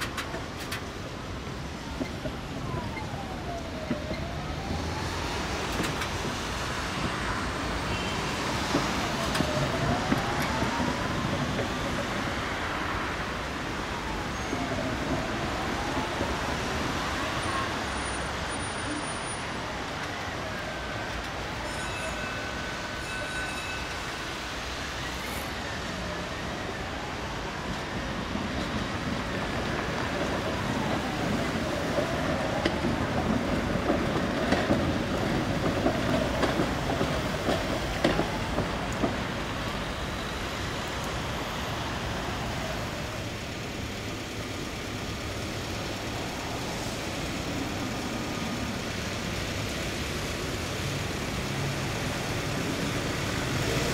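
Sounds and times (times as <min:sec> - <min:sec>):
tram wheels rumbling: 0:00.0 - 0:53.9
wheels clattering over rail joints: 0:28.6 - 0:39.9.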